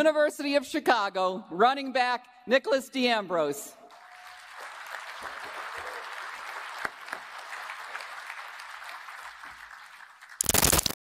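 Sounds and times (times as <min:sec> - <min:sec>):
audience applauding: 0:03.9 - 0:10.9.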